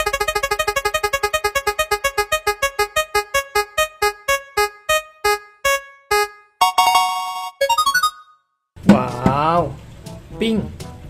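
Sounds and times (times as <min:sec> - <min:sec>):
spinning wheel ticking: 0:00.0 - 0:04.4.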